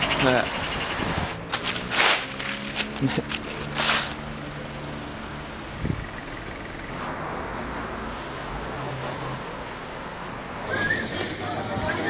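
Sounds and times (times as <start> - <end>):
cars passing: 0.0 - 12.0.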